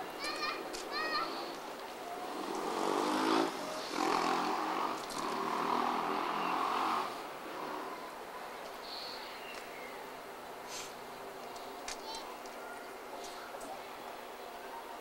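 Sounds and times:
steam locomotive puffing steam: 10.6s - 11.0s.

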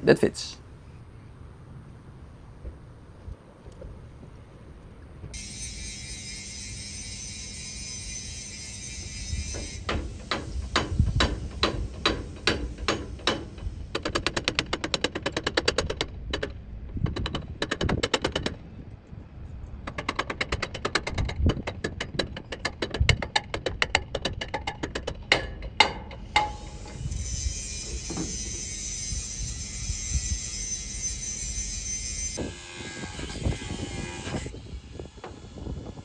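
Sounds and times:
hammer on metal: 25.3s - 26.7s.

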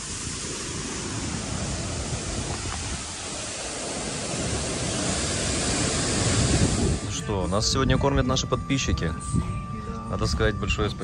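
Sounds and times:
waterfall rushing: 0.0s - 7.3s.

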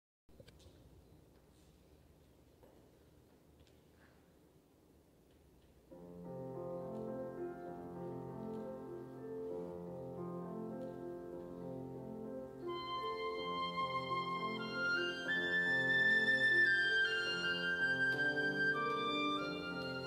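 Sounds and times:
slow background music: 6.0s - 20.0s.

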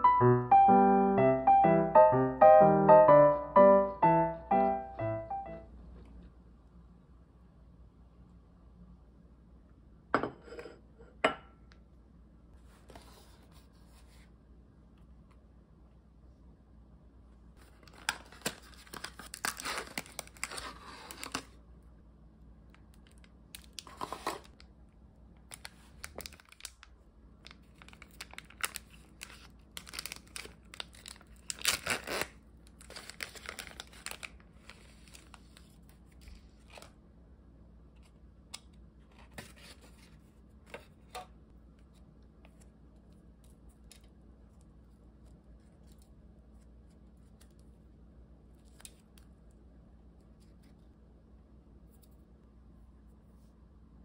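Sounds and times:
plastic film wrapper crinkling: 17.6s - 21.6s, 22.8s - 24.7s, 25.4s - 36.9s.

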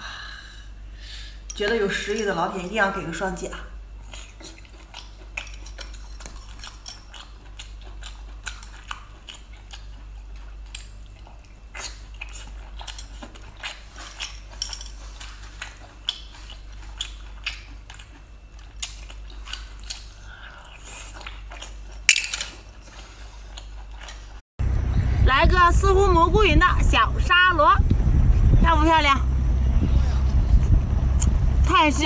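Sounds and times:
metal skewers clinking on ceramic bowl: 1.5s - 2.7s
chewing: 4.0s - 24.4s.

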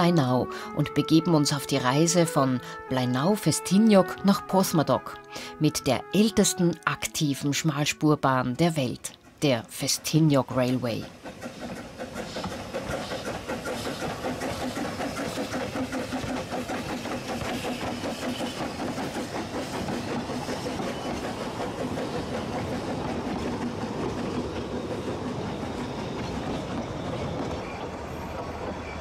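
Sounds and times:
steam train chuffing: 9.2s - 29.0s.

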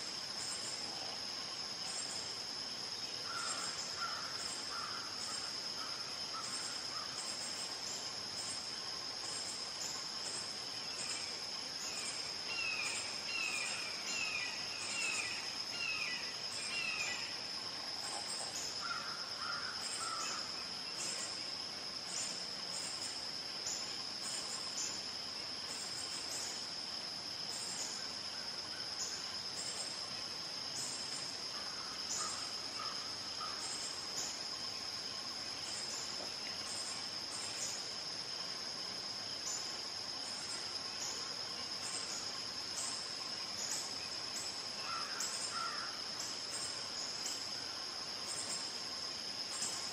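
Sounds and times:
shrill insect chorus: 0.0s - 49.9s.

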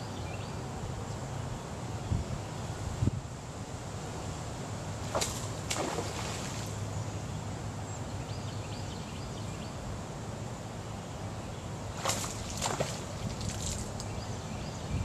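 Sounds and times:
low outdoor hum: 0.0s - 15.0s.

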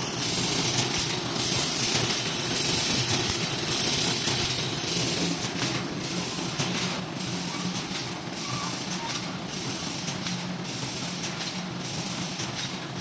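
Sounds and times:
machine clattering: 0.0s - 13.0s.

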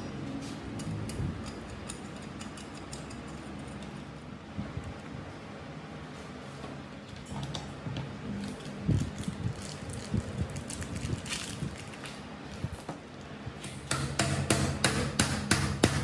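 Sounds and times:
hammer tapping on metal: 13.8s - 16.0s.

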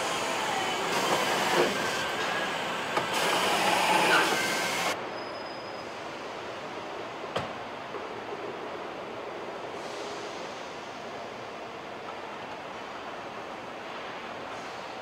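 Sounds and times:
machine squeals and whines: 0.0s - 6.0s.

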